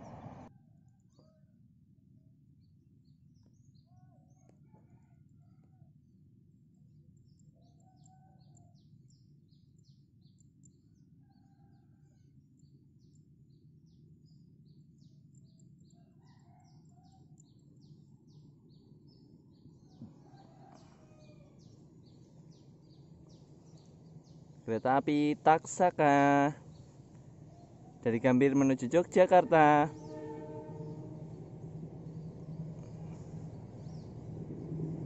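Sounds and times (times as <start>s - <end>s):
birds chirping: 0.0s - 0.5s, 17.8s - 35.0s
steady low rumble: 26.6s - 35.0s.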